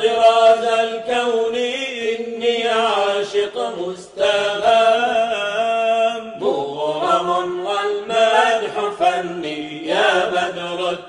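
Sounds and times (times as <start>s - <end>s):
person chanting devotional song: 0.0s - 11.0s.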